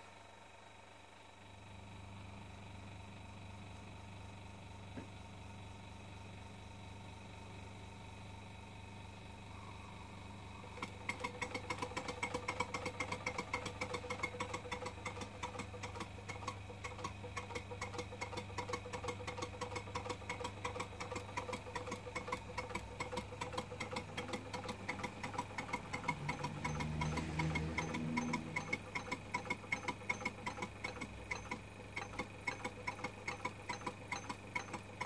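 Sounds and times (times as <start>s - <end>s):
steady low hum: 0.0s - 11.2s
engine motion ticking: 10.8s - 35.0s.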